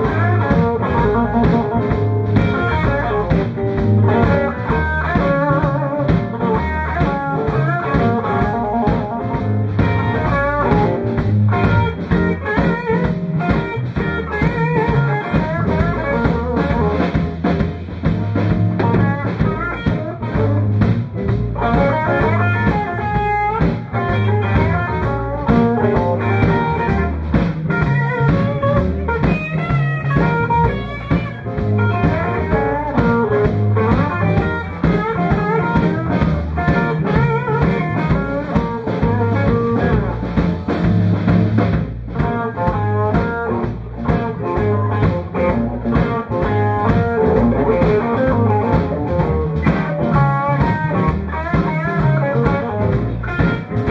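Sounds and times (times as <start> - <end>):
bass guitar: 0.0 - 53.9
drum kit: 0.0 - 53.9
electric guitars: 0.0 - 53.9.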